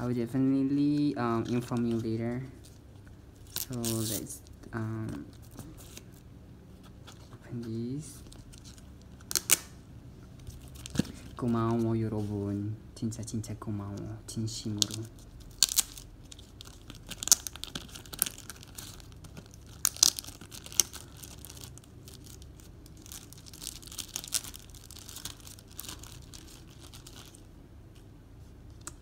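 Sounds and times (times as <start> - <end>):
parcel packaging tearing: 3.4 - 4.5, 8.3 - 9.8, 14.8 - 27.5.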